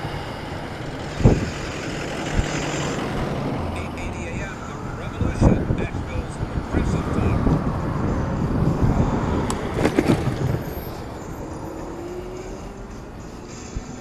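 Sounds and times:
wind buffeting microphone: 0:00.0 - 0:11.6
bicycle road rumble: 0:00.0 - 0:14.0.

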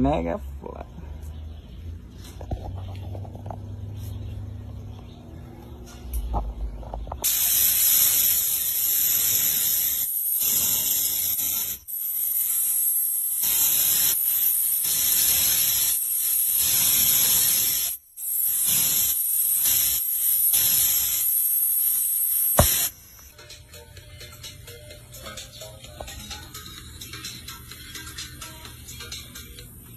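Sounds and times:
high-pitched spray hissing: 0:07.2 - 0:23.3.

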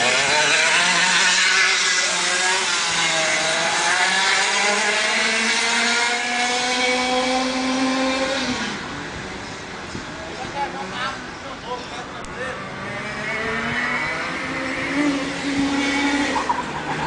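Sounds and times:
go-kart engine accelerating: 0:00.0 - 0:09.9, 0:12.3 - 0:17.0.

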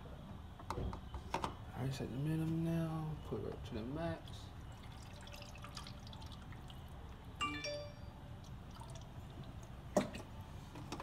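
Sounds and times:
short ringing tone: 0:07.4 - 0:08.2.

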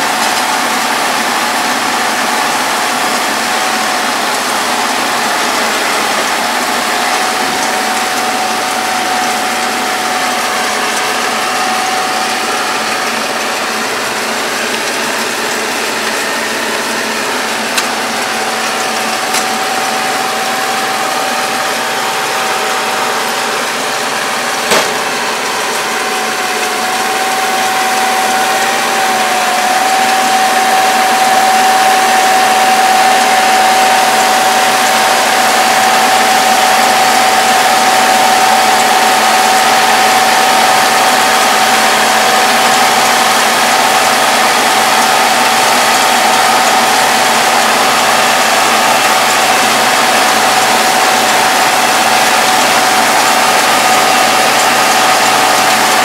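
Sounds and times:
steady machine whine: 0:00.0 - 0:56.0
tractor diesel engine running: 0:00.0 - 0:56.0
sharp knock: 0:24.7 - 0:25.1.

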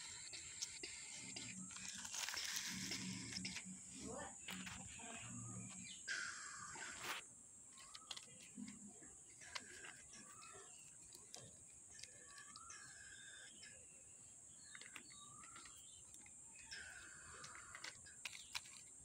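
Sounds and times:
plastic toy vehicles clicking: 0:00.0 - 0:05.9, 0:07.7 - 0:19.0.

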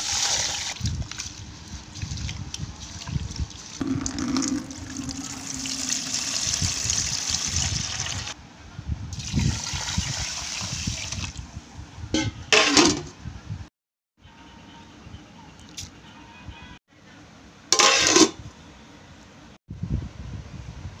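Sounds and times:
water pouring into a bucket: 0:00.0 - 0:08.4, 0:09.2 - 0:11.4.

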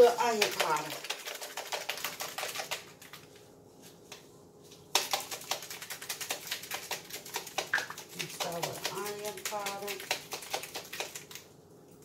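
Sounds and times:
spice shaker rattling: 0:00.4 - 0:03.3, 0:05.0 - 0:11.4.

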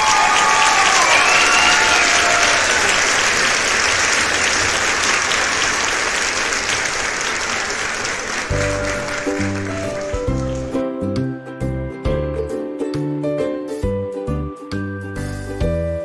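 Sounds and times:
crowd applause: 0:00.0 - 0:10.8
music track with bass line: 0:08.6 - 0:16.0.

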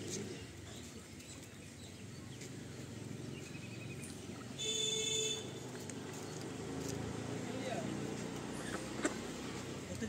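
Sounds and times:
outdoor background noise: 0:00.0 - 0:10.0
faint bird chirp: 0:00.3 - 0:06.4
vehicle horn toot: 0:04.6 - 0:05.6.

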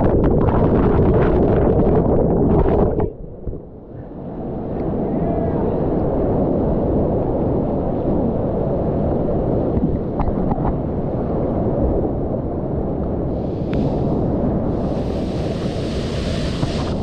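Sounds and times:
bright water hiss: 0:13.3 - 0:17.0.

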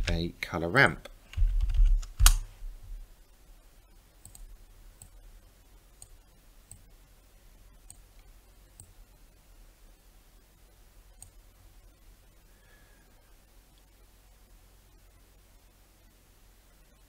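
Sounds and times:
computer mouse clicking: 0:04.2 - 0:05.2, 0:06.0 - 0:06.9, 0:07.9 - 0:09.0.

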